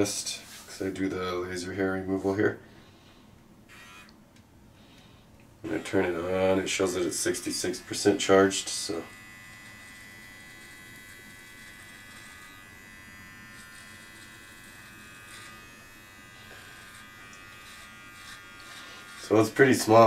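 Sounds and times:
electric trimmer buzzing: 3.6 - 4.2, 5.6 - 20.0.

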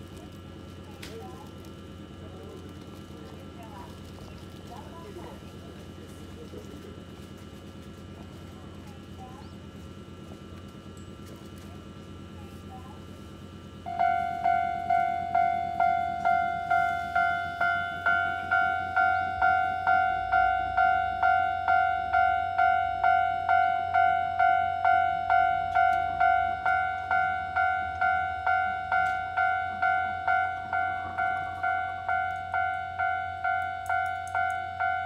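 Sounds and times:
level crossing bell ringing: 13.9 - 35.0.

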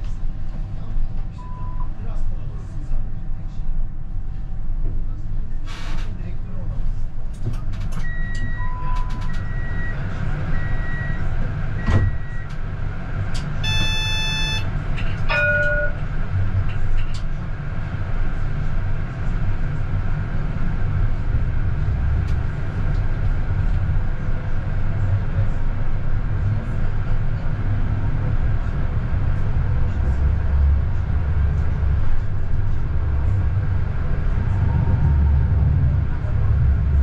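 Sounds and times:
tram rumbling along track: 0.0 - 37.0
chime-like tone: 15.3 - 16.0.

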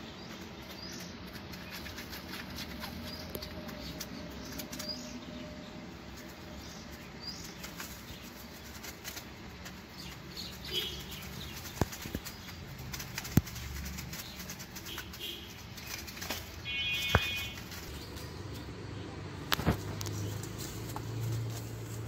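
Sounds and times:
quail wings flapping: 7.4 - 18.3.

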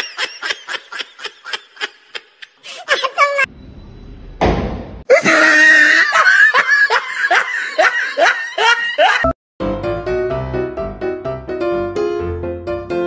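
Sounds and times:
snickering laughter: 0.0 - 3.5, 5.1 - 9.3
light piano music: 9.6 - 13.0.

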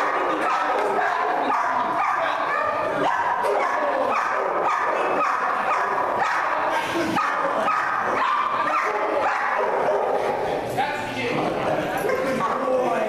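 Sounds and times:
dog barking: 0.0 - 10.4.

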